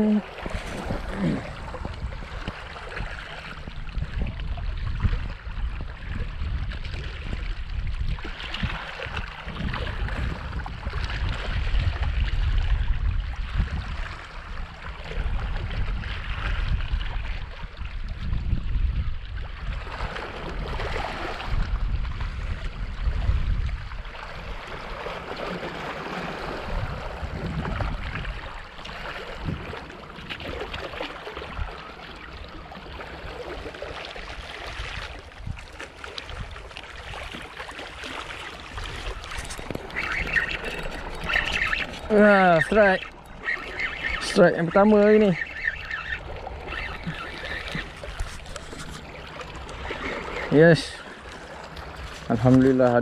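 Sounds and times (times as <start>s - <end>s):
wind buffeting microphone: 0.0s - 31.8s, 32.7s - 37.5s
sea water washing over rocks: 0.0s - 53.0s.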